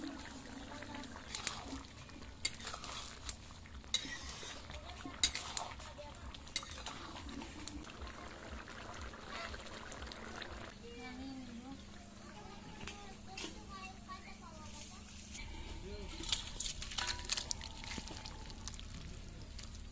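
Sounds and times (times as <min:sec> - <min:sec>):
metal spoon clinking on pan: 0:05.2 - 0:05.5, 0:06.5 - 0:06.9, 0:16.2 - 0:18.1.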